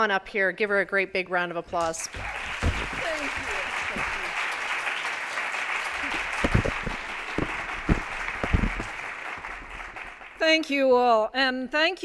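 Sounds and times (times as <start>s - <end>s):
audience applause: 2.1s - 10.4s
dull thumps: 6.0s - 9.7s.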